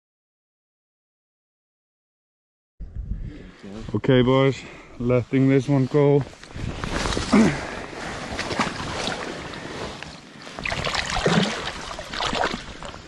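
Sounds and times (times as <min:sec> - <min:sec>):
water splashing around hands: 0:08.3 - 0:09.4, 0:10.6 - 0:13.0.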